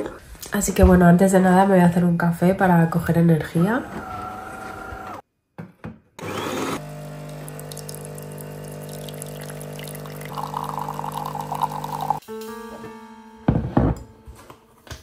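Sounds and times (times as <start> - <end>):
espresso streaming into cup: 6.7 - 12.2
espresso machine pump hum: 6.8 - 12.2
soft piano music: 12.2 - 14.9.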